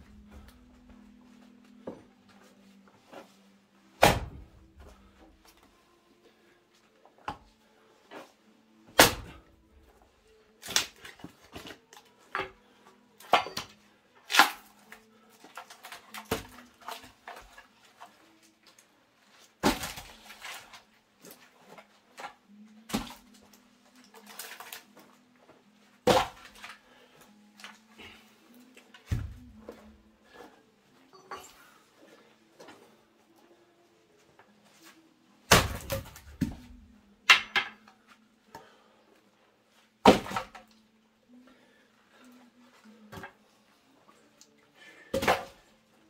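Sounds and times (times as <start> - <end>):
axe striking wood: 4.0 - 4.9, 9.0 - 9.4, 13.2 - 13.7, 19.6 - 20.2, 26.0 - 26.7, 35.5 - 36.7, 40.0 - 40.6, 45.1 - 45.6.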